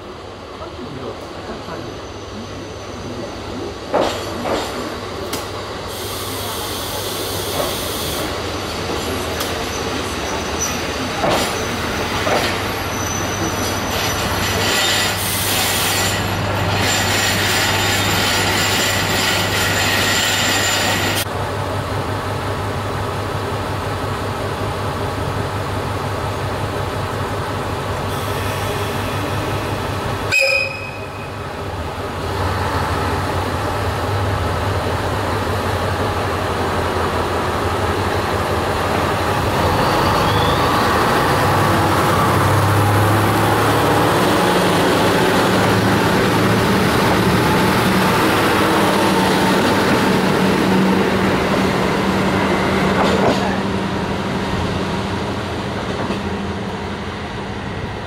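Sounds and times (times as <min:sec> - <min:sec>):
high squealing of train brakes: 0:05.9 - 0:08.8, 0:09.6 - 0:11.9, 0:12.5 - 0:21.2, 0:28.1 - 0:31.5, 0:39.6 - 0:41.3.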